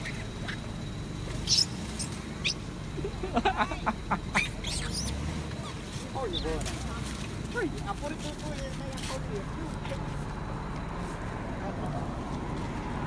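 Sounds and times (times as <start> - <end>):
monkeys squeaking and squealing: 0.0 - 0.8, 1.4 - 3.2, 4.1 - 6.0.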